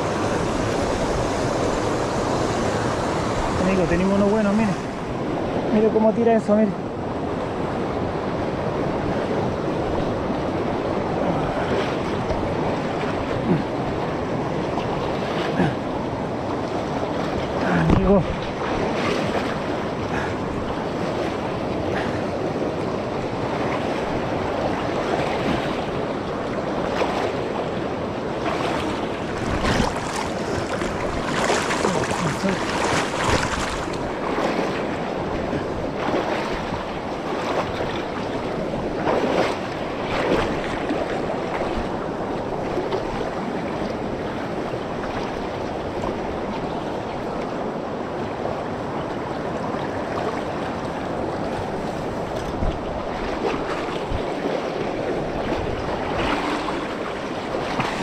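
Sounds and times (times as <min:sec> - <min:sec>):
river rushing over stones: 0:00.0 - 0:45.4.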